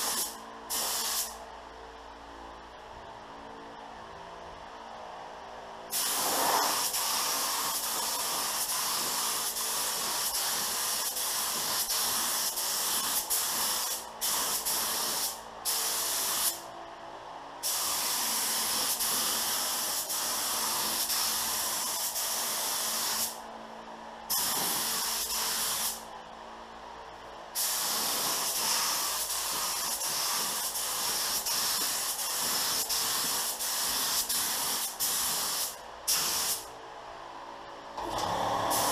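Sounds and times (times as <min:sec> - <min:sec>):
spray gun hissing: 0:00.0 - 0:01.4, 0:05.9 - 0:16.6, 0:17.6 - 0:23.4, 0:24.3 - 0:26.0, 0:27.6 - 0:36.7.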